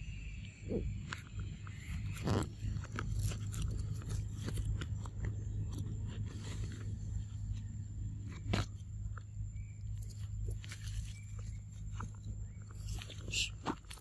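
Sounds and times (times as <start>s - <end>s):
steady low rumble: 0.0s - 14.0s
dry leaves crackling and rustling: 1.7s - 6.8s, 9.9s - 14.0s.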